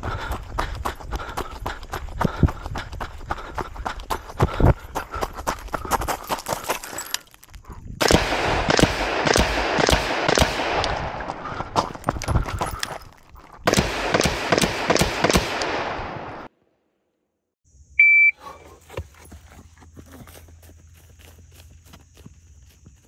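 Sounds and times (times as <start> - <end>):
rifle shots echoing: 8.0 - 11.3, 13.7 - 16.5.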